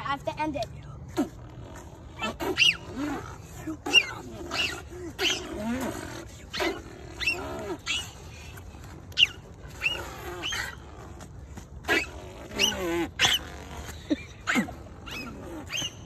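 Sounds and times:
child beatboxing: 0.0s - 6.8s.

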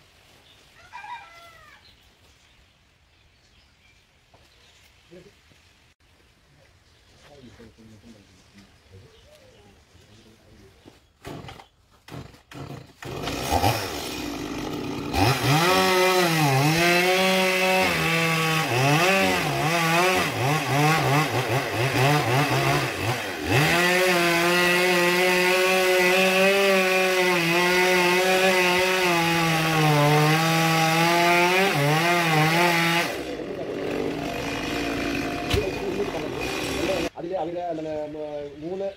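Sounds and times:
chainsaw cutting wood: 11.2s - 37.1s.

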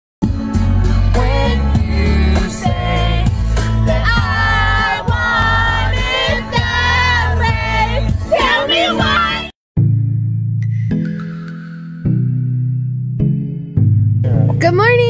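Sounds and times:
pop song with singing: 0.2s - 9.5s.

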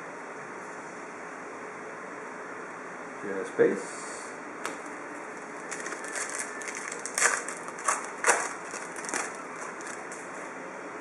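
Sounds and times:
foil wrapper tearing and crinkling: 5.4s - 10.3s.

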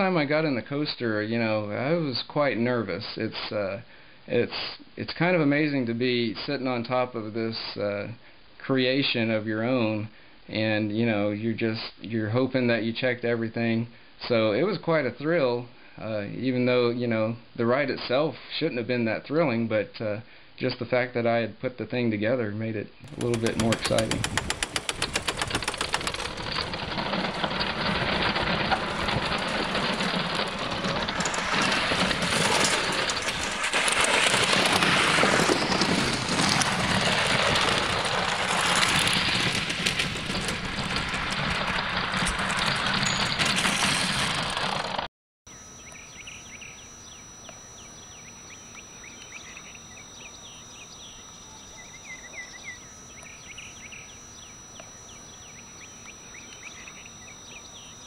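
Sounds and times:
roller coaster car rattling on track: 23.1s - 45.1s
crickets and insects chirping: 45.5s - 58.0s.

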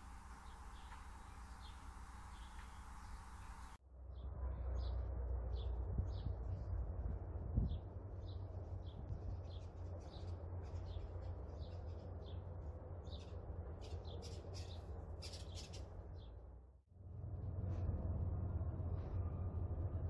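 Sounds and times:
small birds chirping: 0.0s - 3.8s, 7.7s - 16.4s
steady low rumble: 15.8s - 20.0s.

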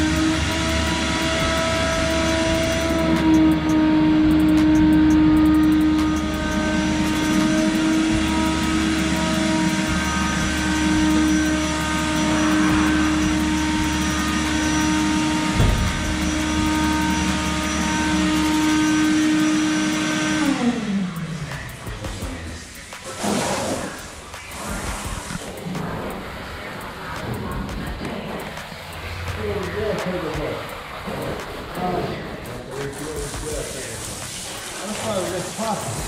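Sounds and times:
electric motor whining: 0.0s - 24.0s.

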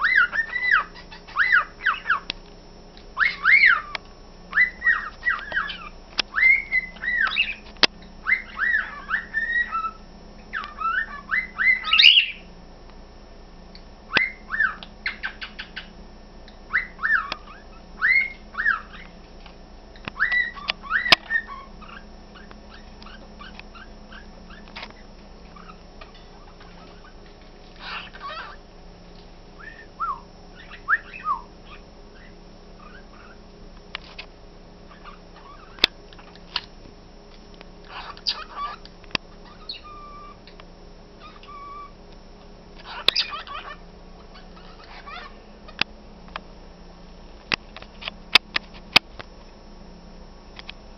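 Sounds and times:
pet birds whistling: 0.0s - 2.3s, 3.2s - 12.5s, 14.1s - 16.0s, 16.7s - 19.2s, 20.0s - 28.7s, 29.6s - 33.5s, 34.9s - 36.4s, 37.8s - 40.5s, 41.2s - 42.0s, 42.8s - 45.8s.

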